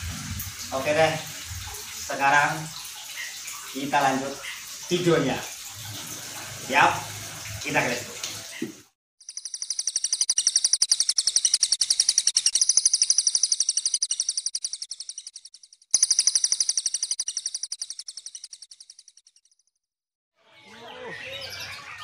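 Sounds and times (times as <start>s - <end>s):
high rapid bird-like trill: 9.2s - 19.6s.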